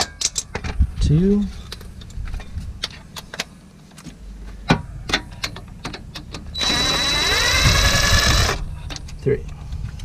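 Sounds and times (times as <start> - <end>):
tools clicking and tapping on bolts: 0.0 - 0.7, 5.1 - 6.5
power tool whining: 6.5 - 8.6.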